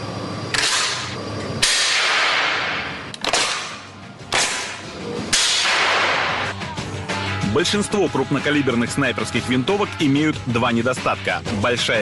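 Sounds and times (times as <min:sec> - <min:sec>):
sharp cracks trailing into hiss: 0:00.5 - 0:06.6.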